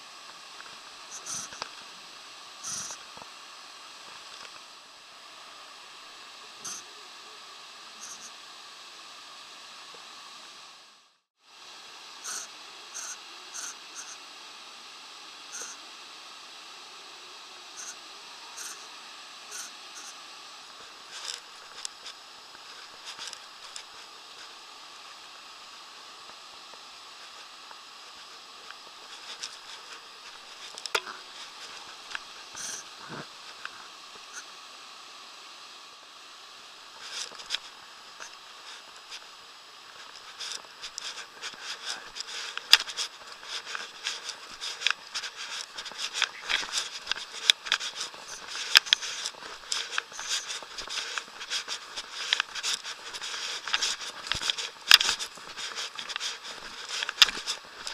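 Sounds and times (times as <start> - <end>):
rustling in grass: 40.0 - 57.9.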